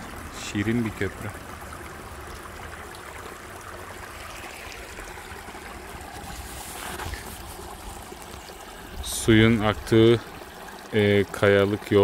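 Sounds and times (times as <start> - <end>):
creek trickling over stones: 0.0 - 12.0.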